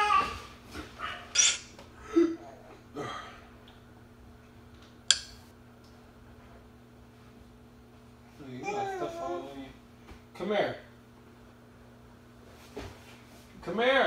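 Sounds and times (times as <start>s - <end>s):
toddler vocal sounds: 0.0s - 0.5s, 8.6s - 9.5s
faint steady hum: 0.0s - 14.0s
sharp click: 5.1s - 5.5s.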